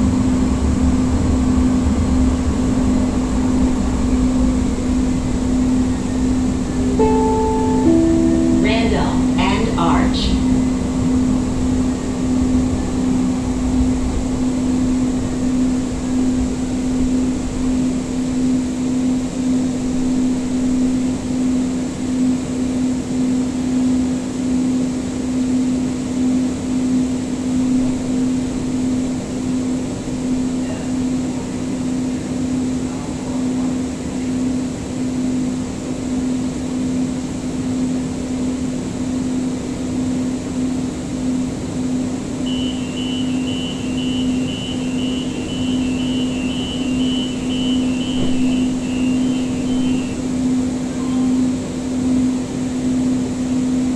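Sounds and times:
steady electrical hum: 1.8 - 22.2
short high beeps: 7.0 - 9.8.

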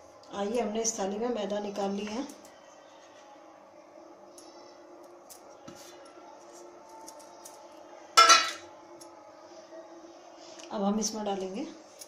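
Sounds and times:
steel bowl clanking on plate: 8.2 - 8.6.

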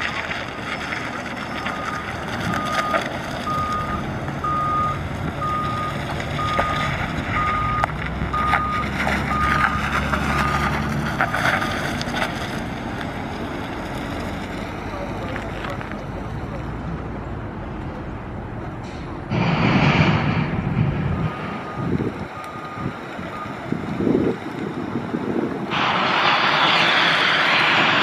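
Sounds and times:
truck engine running: 0.0 - 28.0
reversing alarm beeping: 1.6 - 10.7, 21.1 - 23.7.

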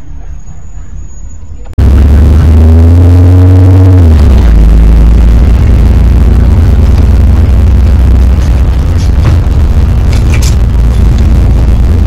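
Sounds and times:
distorted bus engine drone: 0.0 - 12.0
held tone dropping in pitch: 1.8 - 12.0.

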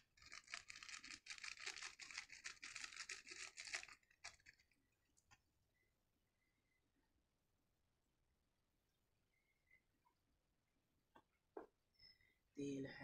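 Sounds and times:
plastic packet crinkling: 0.0 - 4.8.

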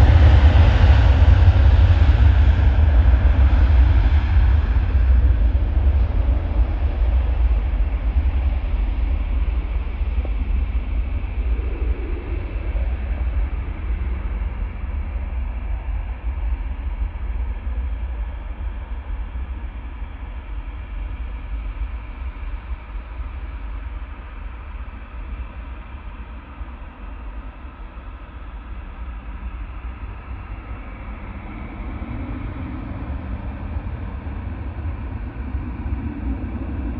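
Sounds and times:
jet engines roaring: 0.0 - 16.9.

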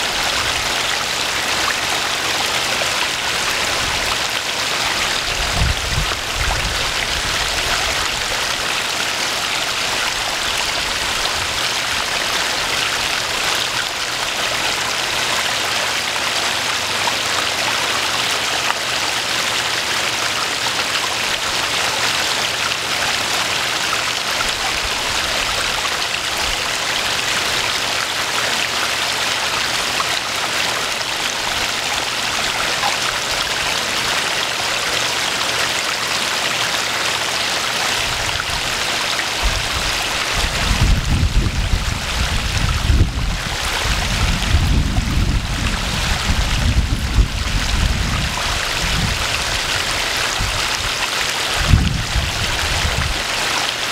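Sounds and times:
waterfall splashing: 0.0 - 53.9.

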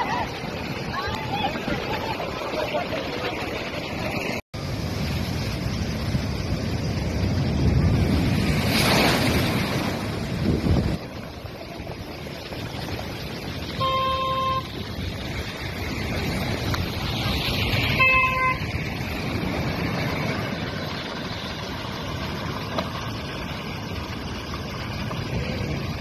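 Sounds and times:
surf breaking against seawall: 0.0 - 26.0
wind on microphone: 4.8 - 21.4
vehicle horn honking: 13.8 - 14.8, 17.9 - 18.7.

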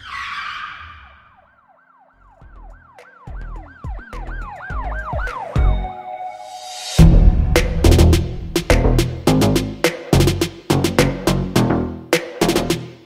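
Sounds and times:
siren-like yelp sweeping: 0.0 - 7.6
deep bass hits: 7.0 - 11.8.

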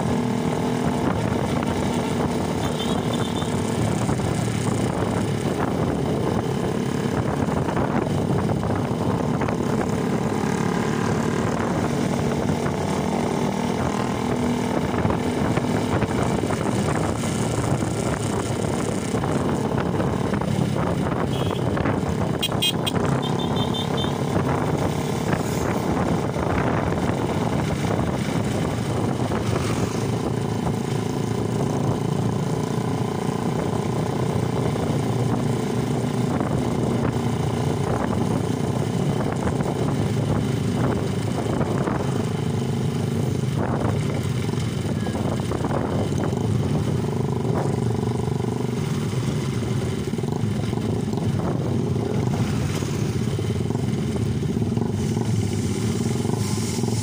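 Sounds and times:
motorcycle engines running: 0.0 - 57.0.

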